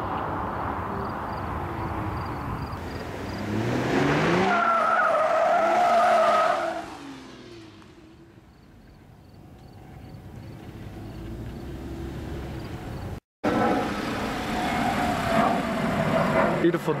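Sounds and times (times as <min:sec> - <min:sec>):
car engine accelerating: 0:02.8 - 0:08.9, 0:09.6 - 0:16.6.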